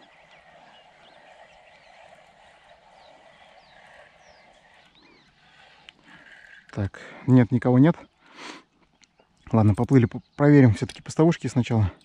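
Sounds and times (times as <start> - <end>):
faint bird chirps: 0.0 - 6.7.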